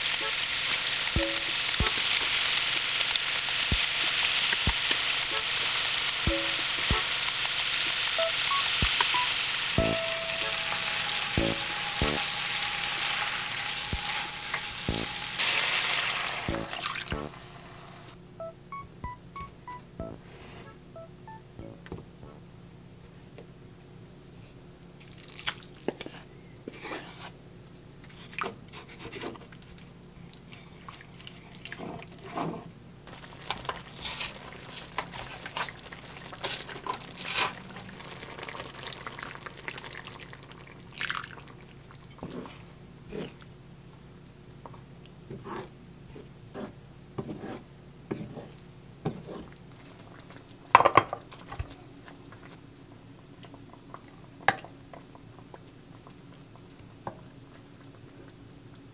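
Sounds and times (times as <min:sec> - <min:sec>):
utensils scraping a pan: 0:10.3 - 0:16.7.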